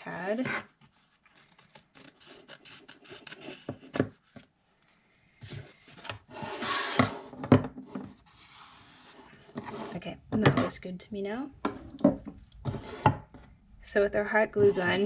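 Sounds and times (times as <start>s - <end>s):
canvas sliding across tabletop: 8.2s - 10.0s.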